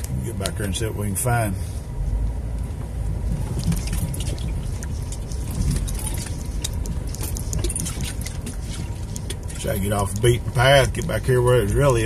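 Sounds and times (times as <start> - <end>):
low engine and road rumble: 0.0 - 12.0
rattles and clicks over stones: 3.5 - 12.0.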